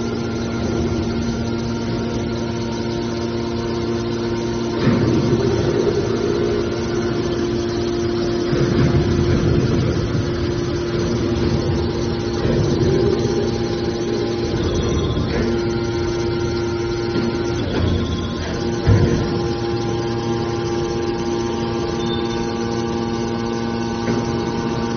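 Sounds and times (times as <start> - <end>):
hydraulic power unit humming: 0.0 - 24.9.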